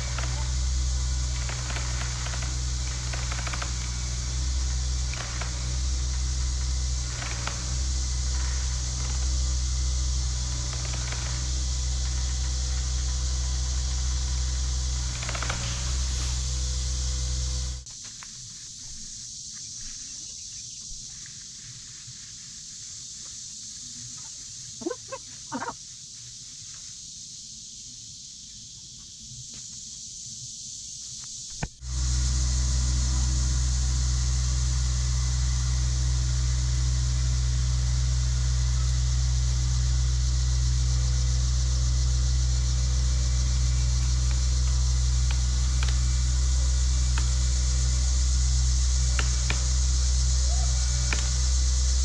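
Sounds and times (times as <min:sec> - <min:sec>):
engine running at low speed: 0:00.0 - 0:18.0, 0:31.5 - 0:52.0
high-pitched hiss: 0:00.0 - 0:52.0
animal calls: 0:24.2 - 0:25.9.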